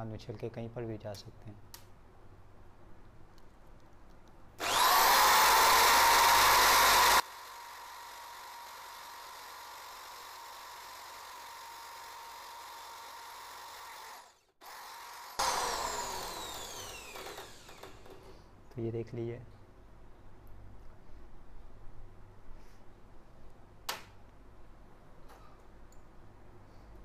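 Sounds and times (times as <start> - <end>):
electric drill with wire brush: 4.6 - 18.3.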